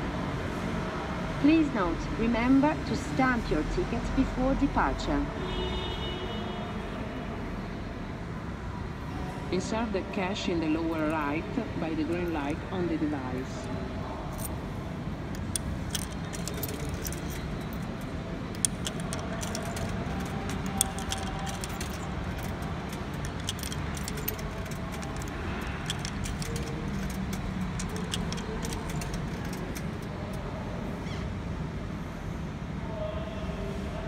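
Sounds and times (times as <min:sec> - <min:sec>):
coins clinking into machine: 0:15.3 - 0:30.4
sharp metallic clacks: 0:15.4 - 0:30.3.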